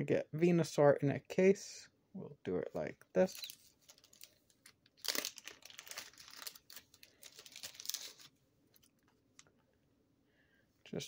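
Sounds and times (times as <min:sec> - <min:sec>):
plastic sleeve crinkling: 0:03.2 - 0:09.5.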